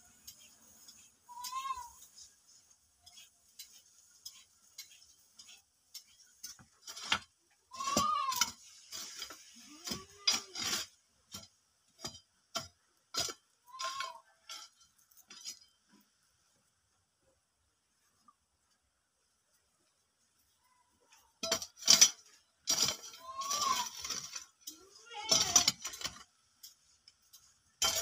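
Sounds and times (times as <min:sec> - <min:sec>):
spade chopping packed dirt: 0:03.1 - 0:15.7, 0:21.4 - 0:28.0.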